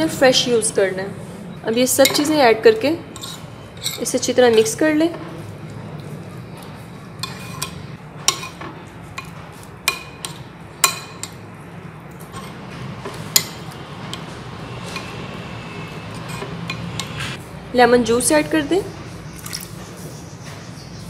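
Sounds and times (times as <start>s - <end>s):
spoon stirring in glass bowl: 3.0s - 11.4s, 12.1s - 17.4s.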